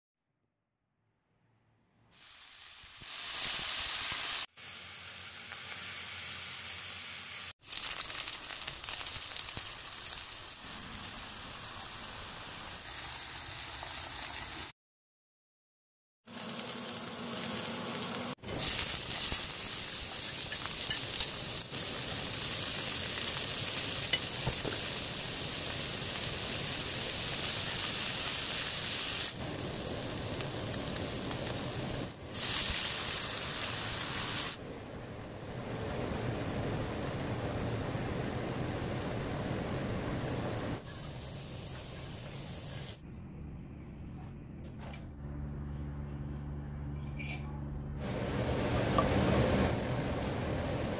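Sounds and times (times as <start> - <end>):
food sizzling in hot oil: 2.2 - 14.7, 16.3 - 34.6.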